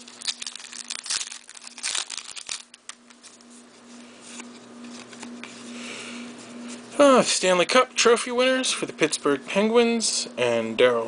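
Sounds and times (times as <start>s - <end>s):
wrapper crinkling and tearing: 0.0s - 3.3s
wrapper rustling: 0.0s - 3.5s.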